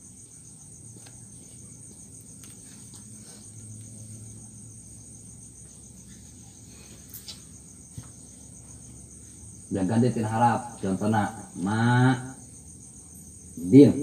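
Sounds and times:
crickets chirping: 0.0 - 14.0
faint low hum: 0.0 - 14.0.

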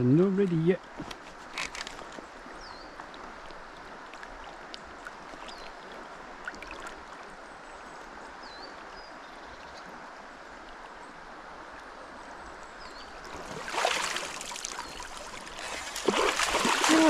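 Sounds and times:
river water rushing: 9.9 - 17.0.

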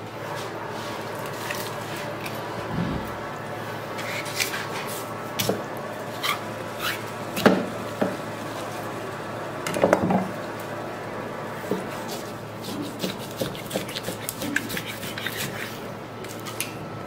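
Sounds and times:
steady background hum: 0.0 - 17.0
knife cutting and scraping fish: 4.0 - 5.1, 12.0 - 16.6.

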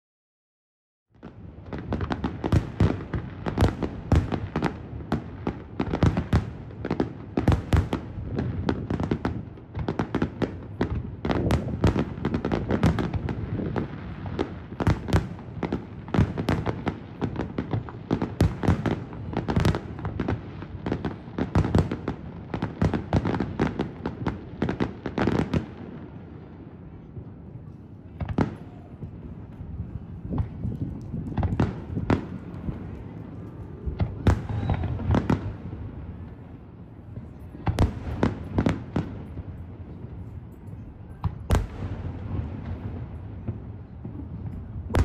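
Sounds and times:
fireworks bursting: 28.1 - 45.0.

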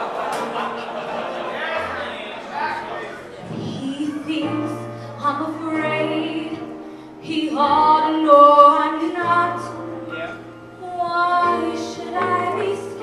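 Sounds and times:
woman singing: 3.6 - 9.9, 10.8 - 13.0.

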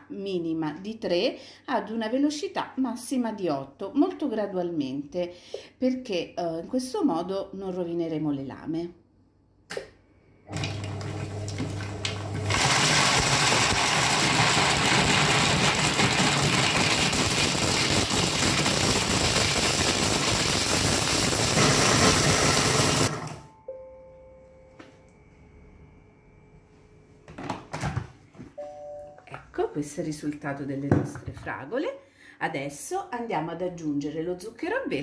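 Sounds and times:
food processor chopping frozen fruit: 10.5 - 23.4
faint electronic tone: 23.4 - 27.2, 28.6 - 29.3.

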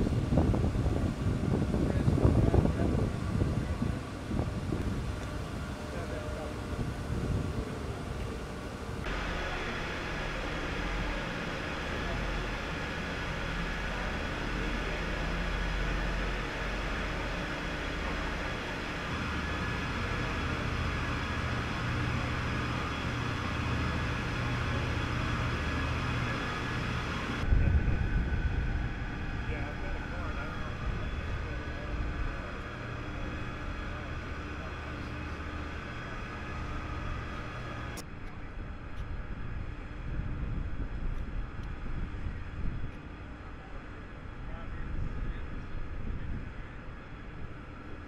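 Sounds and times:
outdoor background noise: 0.0 - 48.0
power unit humming: 0.0 - 48.0
noisy hiss: 9.1 - 27.7.

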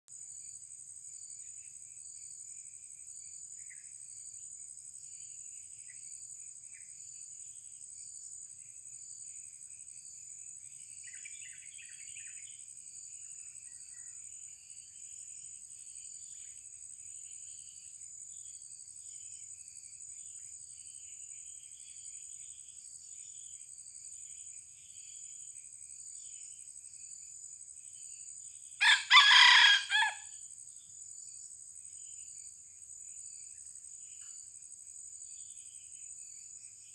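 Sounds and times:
high insect drone: 0.1 - 36.9
rooster crowing: 28.8 - 30.3.

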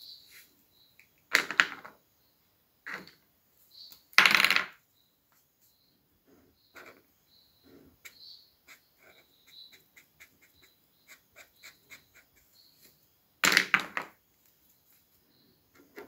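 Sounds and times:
marker scratching on paper: 6.3 - 7.0, 7.7 - 13.0.

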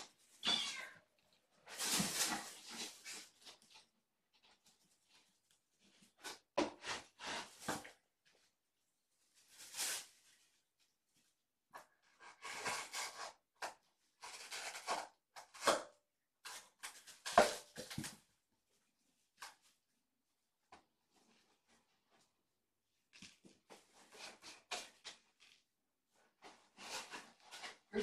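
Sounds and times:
rustling and scraping: 1.5 - 8.5, 20.7 - 28.0.

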